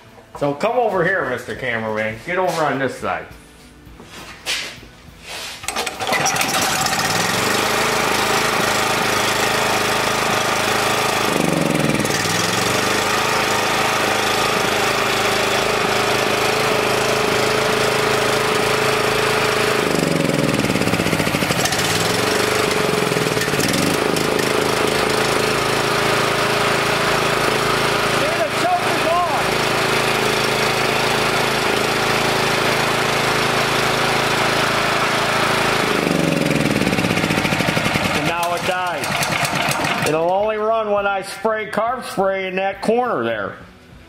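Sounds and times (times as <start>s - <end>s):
recoil starter pull: 5.6s - 40.5s
generator engine running: 5.6s - 41.3s.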